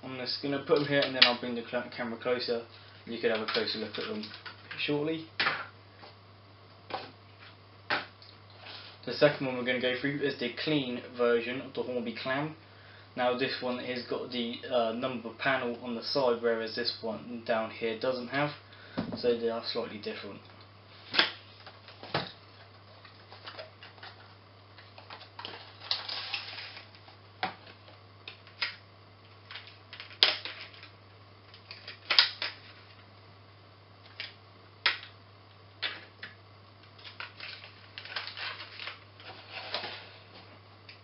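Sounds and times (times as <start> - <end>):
faint low hum: 0.0 - 41.0
plastic and card rustling: 3.2 - 4.8, 21.1 - 28.8, 36.8 - 40.3.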